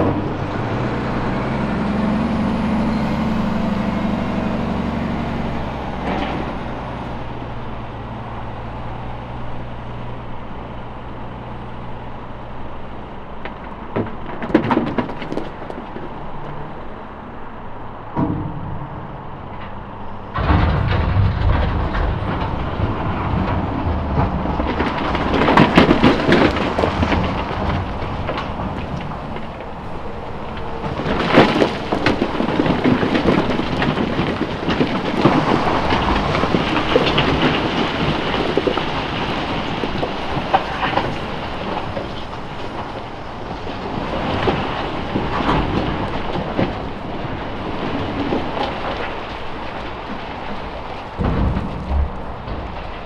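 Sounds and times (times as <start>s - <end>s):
rocks tumbling from truck: 0.0s - 11.8s, 12.4s - 17.1s, 18.1s - 53.0s
truck engine humming: 0.0s - 53.0s
large rocks knocking: 13.4s - 16.6s, 20.4s - 53.0s.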